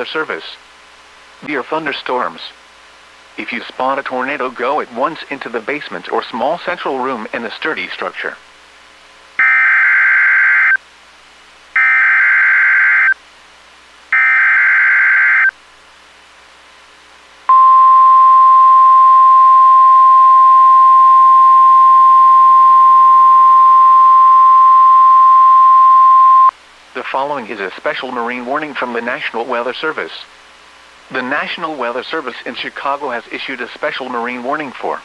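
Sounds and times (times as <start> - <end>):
steady warning alarm tone: 9.4 - 10.8, 11.8 - 13.2, 14.1 - 15.5, 17.5 - 26.5.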